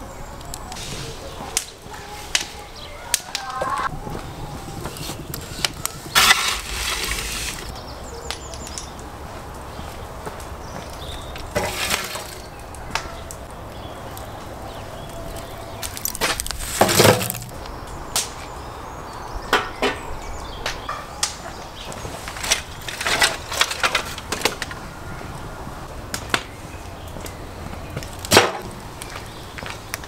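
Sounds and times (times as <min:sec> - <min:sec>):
charcoal pouring into metal stove: 0:06.1 - 0:07.7, 0:11.6 - 0:12.5, 0:16.0 - 0:17.6
wooden knocks of firewood logs: 0:10.3 - 0:13.1, 0:15.8 - 0:18.3.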